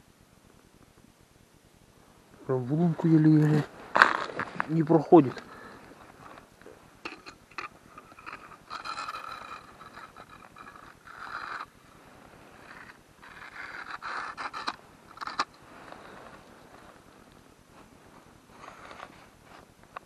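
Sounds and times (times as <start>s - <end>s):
hands scraping a fishing line: 7.0s - 17.0s.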